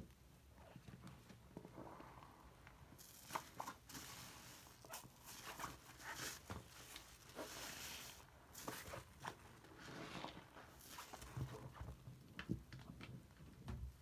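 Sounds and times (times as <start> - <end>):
slime squelching by hand: 3.0 - 9.4.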